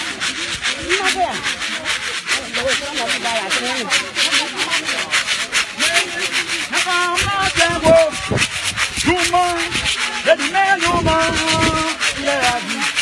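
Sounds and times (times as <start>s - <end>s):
rasping rhythm: 0.0s - 13.0s.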